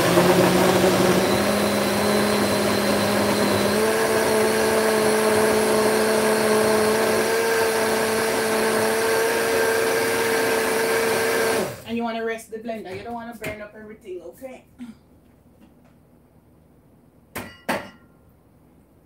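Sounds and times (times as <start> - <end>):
blender motor humming: 0.0 - 11.9.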